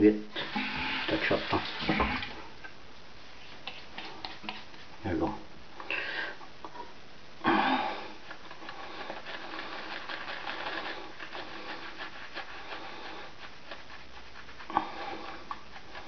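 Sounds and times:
shaving brush scrubbing lather: 0.4s - 2.4s, 3.6s - 4.9s, 8.2s - 16.0s.

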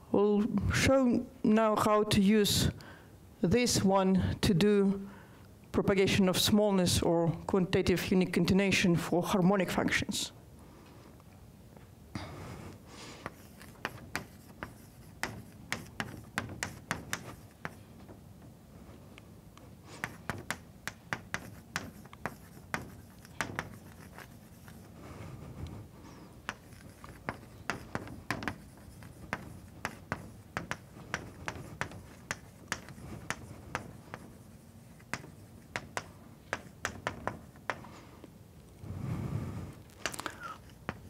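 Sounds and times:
chalk tapping and scraping on blackboard: 13.2s - 18.2s, 19.9s - 25.0s, 26.2s - 37.9s, 40.0s - 41.0s.

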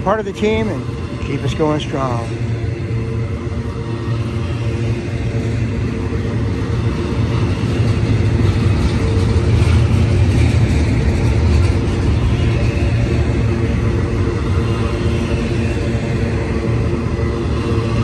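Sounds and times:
train wheels rumbling on rails: 3.8s - 18.0s.

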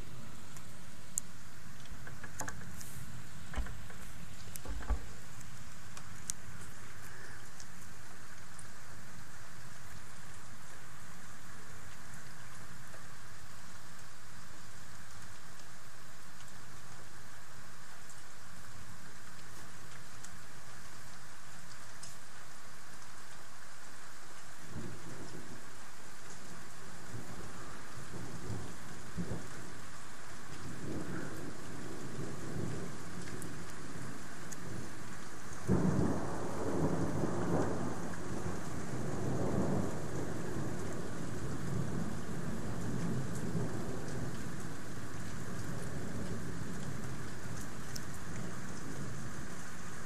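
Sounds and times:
steady rain: 0.0s - 50.0s
rolling thunder: 30.6s - 34.9s, 35.7s - 44.4s.

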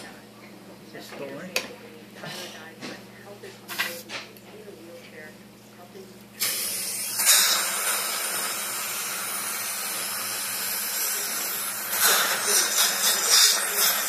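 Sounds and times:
dental suction hissing: 6.4s - 14.0s.

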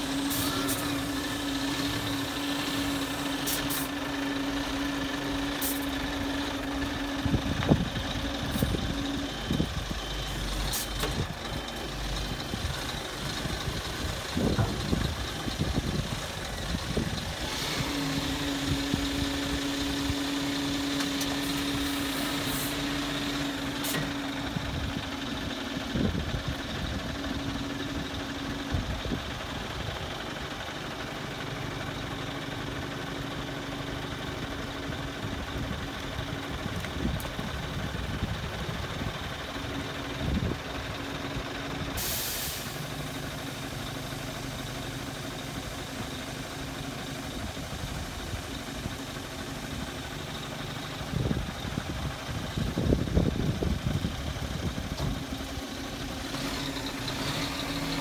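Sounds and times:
hydraulic whine: 0.0s - 25.0s
truck diesel engine idling: 0.0s - 58.0s.

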